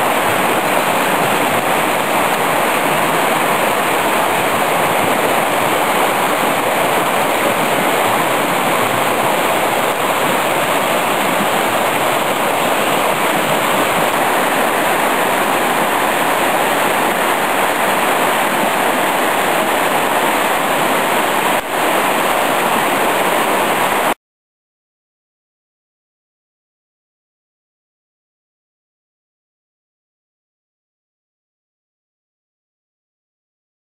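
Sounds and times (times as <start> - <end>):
stream rushing over rocks: 0.0 - 24.2.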